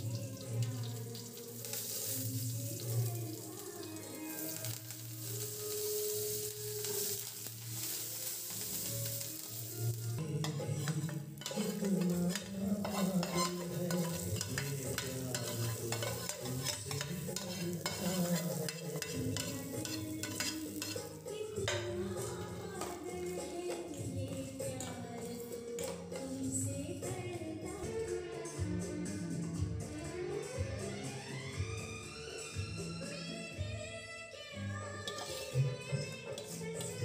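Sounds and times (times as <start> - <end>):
spices sizzling in hot oil: 0.0 - 26.7, 34.9 - 37.0
ladle scraping metal pan: 10.4 - 21.9, 34.9 - 36.8.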